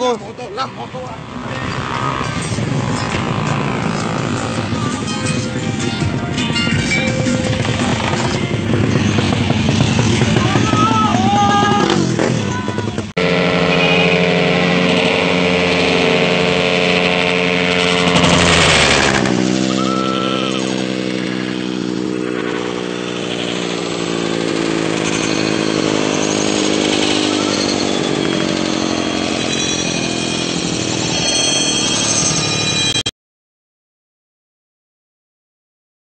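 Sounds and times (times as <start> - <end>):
motorcycle engines revving high: 0.0 - 33.1.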